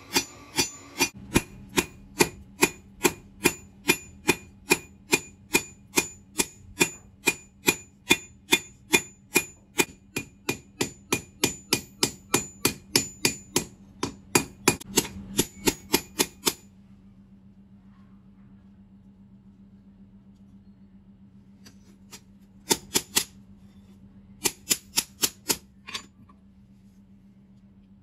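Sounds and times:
hammer ringing on anvil: 0:00.0 - 0:16.6.

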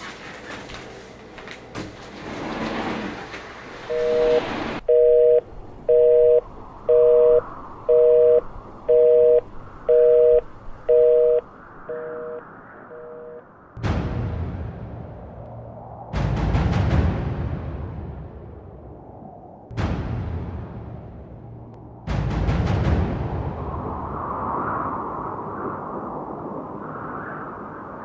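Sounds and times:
noisy rustling: 0:00.0 - 0:05.0
telephone busy signal beeps: 0:03.9 - 0:13.4.

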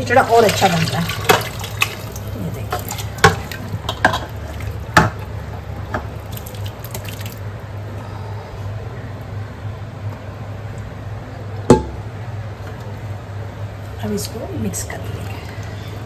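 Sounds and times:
wet dripping and plopping: 0:00.4 - 0:05.3, 0:05.9 - 0:07.6.

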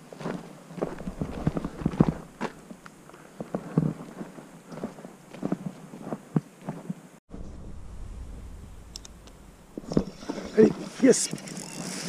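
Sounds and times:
soft footsteps: 0:00.0 - 0:07.0
steady low rumble: 0:07.3 - 0:10.0.

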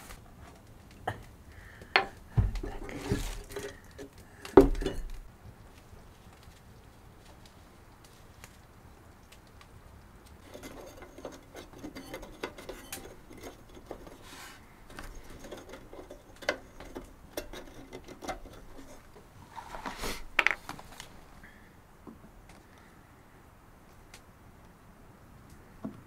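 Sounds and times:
plastic bottle rustling: 0:02.4 - 0:03.9.

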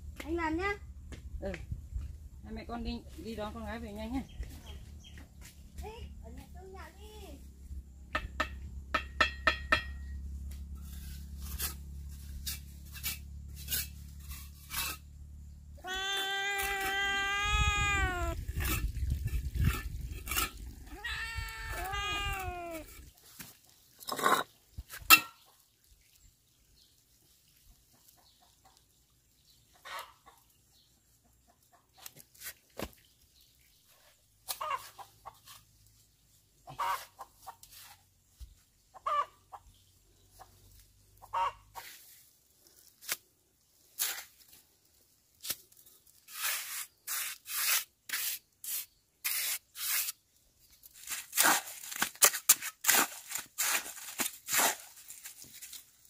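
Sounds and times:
rough scraping strokes: 0:10.4 - 0:17.1, 0:17.8 - 0:25.3, 0:41.7 - 0:50.2, 0:50.9 - 0:55.9
chicken clucking: 0:29.7 - 0:30.4, 0:36.7 - 0:37.6, 0:38.9 - 0:39.7, 0:41.2 - 0:41.8.

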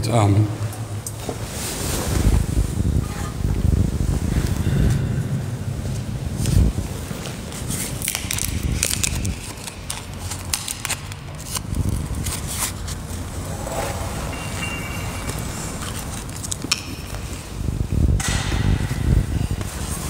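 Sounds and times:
low rumble: 0:00.5 - 0:09.5, 0:11.5 - 0:19.8
wafer crackling and clicking: 0:06.4 - 0:14.0.

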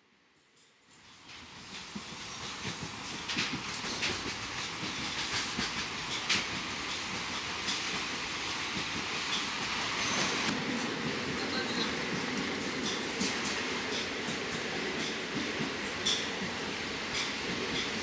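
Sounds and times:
train rattling along track: 0:00.3 - 0:18.0
wheels clacking over rails: 0:01.6 - 0:10.6.

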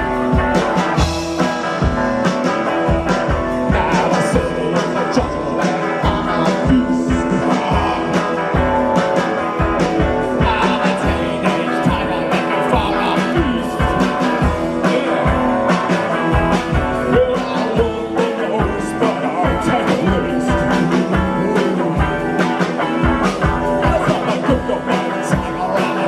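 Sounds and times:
drum kit: 0:00.0 - 0:26.0
electric guitar: 0:00.0 - 0:26.0
person singing: 0:03.3 - 0:26.0.

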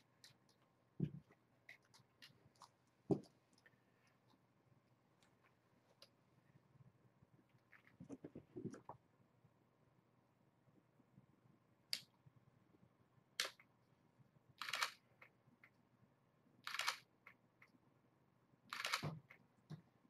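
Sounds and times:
camera shutter clicking: 0:14.6 - 0:15.0, 0:16.7 - 0:17.0, 0:18.7 - 0:19.0.

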